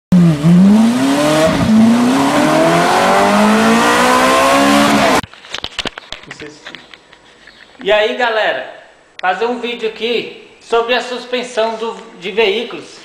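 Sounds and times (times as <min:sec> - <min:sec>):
car engine accelerating hard: 0:00.1 - 0:05.2.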